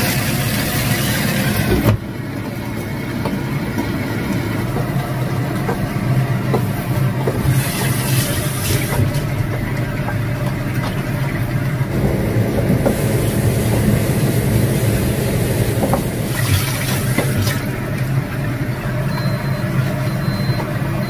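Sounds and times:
range hood fan humming: 0.0s - 21.0s
tap running into metal sink: 11.9s - 17.7s.

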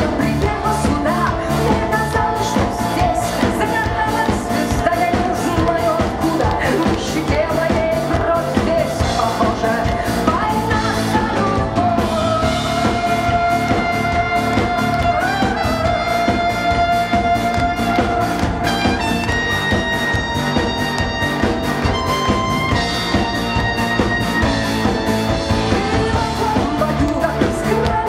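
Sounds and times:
rock band playing: 0.0s - 28.0s
trumpet melody: 12.2s - 28.0s.

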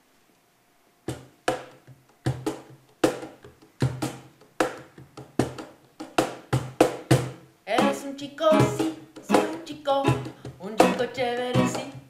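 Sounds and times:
cajon beating: 1.1s - 12.0s
classical guitar strummed: 7.8s - 11.9s.

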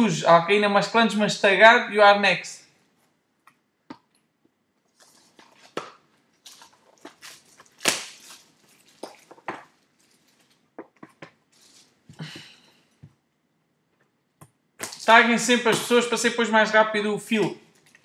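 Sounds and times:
plastic shrink wrap tearing: 4.9s - 10.7s, 11.5s - 12.0s.

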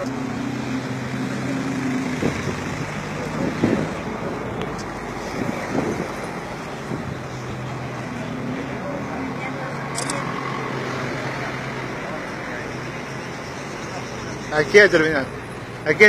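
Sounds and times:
rushing wind and road noise: 0.0s - 13.4s
vehicle engine humming: 0.0s - 16.0s.

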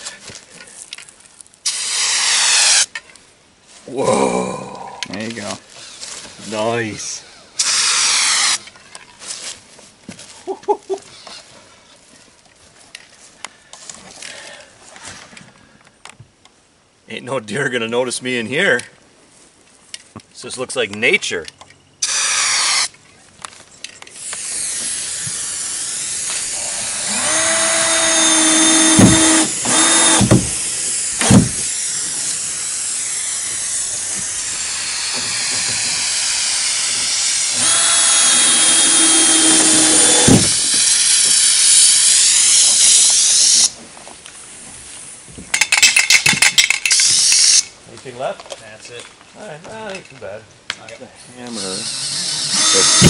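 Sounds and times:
spray paint can hissing: 40.6s - 43.7s, 46.9s - 47.6s
spray can rattling: 45.5s - 47.6s.

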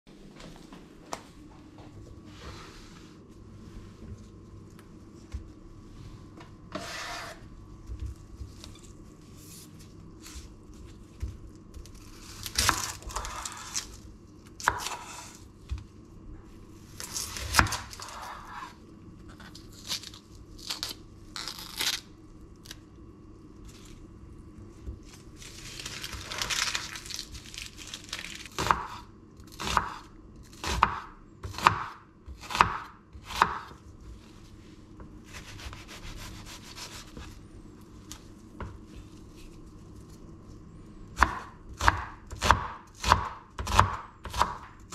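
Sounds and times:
knife chopping on cutting board: 6.8s - 7.4s, 28.6s - 29.0s, 29.6s - 30.0s, 30.6s - 33.8s, 35.3s - 37.3s, 41.2s - 44.8s
onion skin tearing: 11.8s - 14.0s, 19.6s - 22.8s, 25.2s - 28.6s.

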